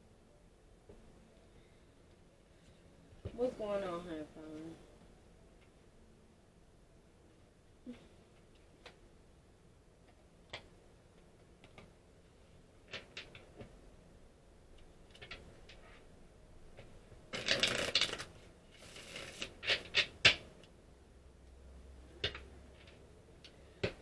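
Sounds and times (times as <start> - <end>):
cards shuffling: 16.8 - 20.4.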